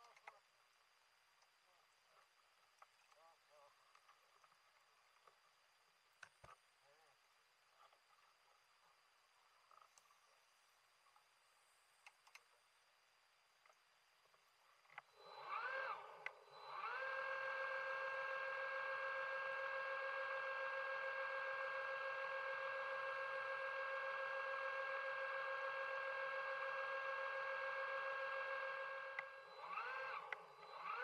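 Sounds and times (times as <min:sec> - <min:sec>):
underwater scooter motor whining: 0:15.1 - 0:31.0.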